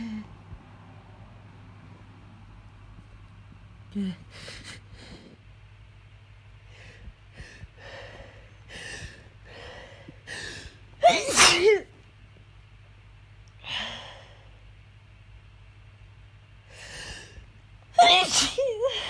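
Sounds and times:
person sneezing: 11.0 - 11.9, 18.0 - 19.0.

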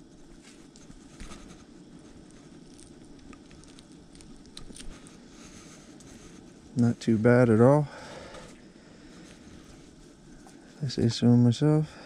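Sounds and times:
low background hiss: 0.0 - 12.0
small clicks and rustles: 0.1 - 6.9.

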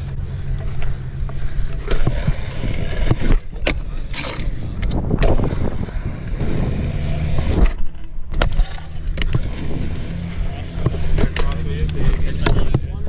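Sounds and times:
scooter wheels rumbling on concrete: 0.0 - 13.0
wind on microphone: 1.7 - 7.8, 9.0 - 10.3.

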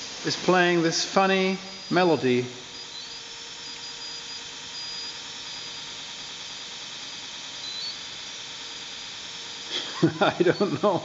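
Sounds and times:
faint high stepping tones: 0.0 - 5.0
electric motor hiss: 0.0 - 11.0.

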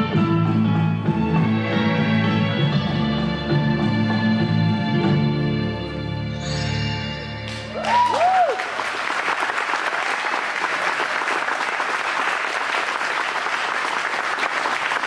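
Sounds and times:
audience applauding: 7.5 - 15.0.

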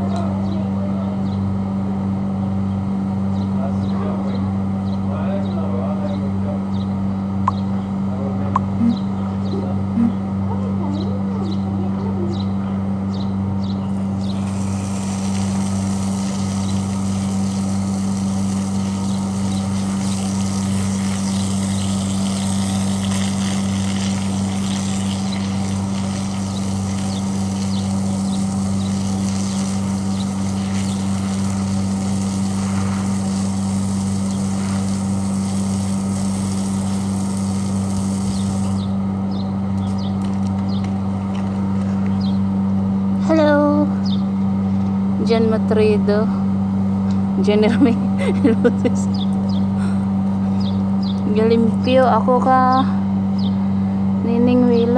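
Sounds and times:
low mechanical hum: 0.0 - 54.9
hose water spraying on concrete: 13.9 - 39.0.

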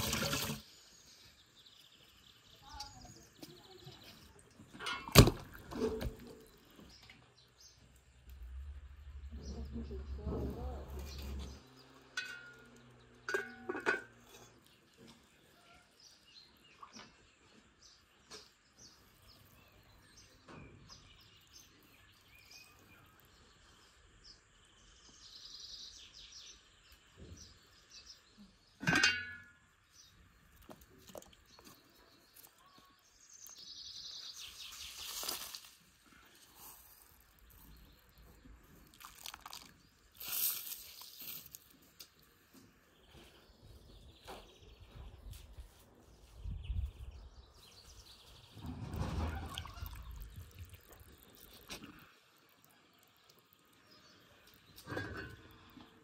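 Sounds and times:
water splashing in a pot: 0.0 - 0.8, 36.9 - 42.2, 48.8 - 56.0
birds chirping faintly: 0.0 - 56.0.

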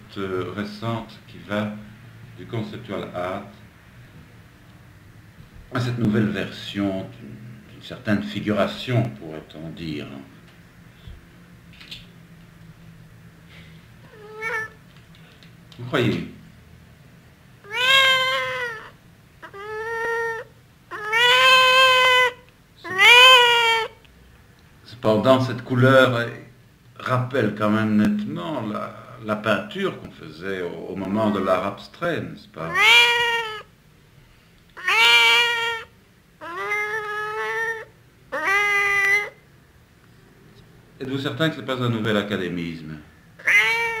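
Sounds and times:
cat meowing: 14.1 - 14.8, 17.6 - 24.0, 32.7 - 33.7, 34.8 - 39.4, 43.4 - 44.0.

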